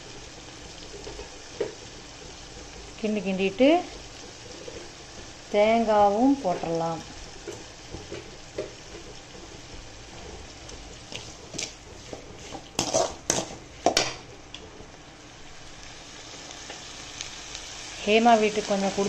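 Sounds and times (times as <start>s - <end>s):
ladle stirring in pan: 0.0s - 15.1s
food sizzling in oil: 0.0s - 19.0s
ladle scraping and knocking pan: 7.4s - 14.0s.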